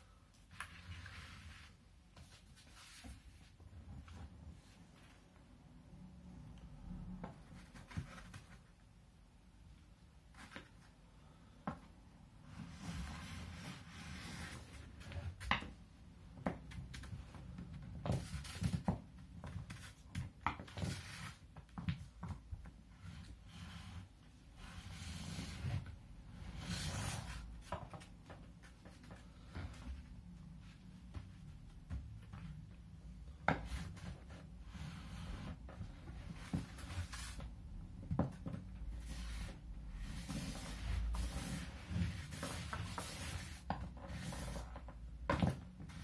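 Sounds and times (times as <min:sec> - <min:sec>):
cardboard tube scraping on paper: 0:00.5 - 0:03.5, 0:12.5 - 0:15.3, 0:20.6 - 0:21.4, 0:22.9 - 0:28.0, 0:33.5 - 0:37.5, 0:38.1 - 0:46.0.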